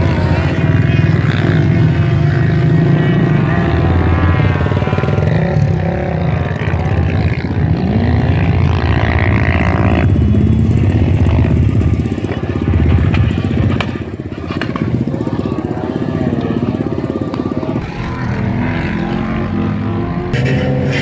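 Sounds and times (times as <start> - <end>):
off-road engines revving: 0.0 - 21.0
heavy low rumble: 9.8 - 21.0.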